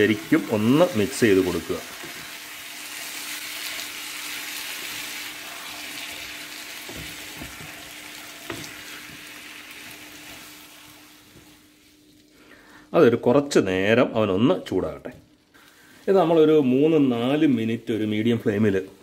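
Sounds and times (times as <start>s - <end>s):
food sizzling in a frying pan: 0.0s - 12.3s.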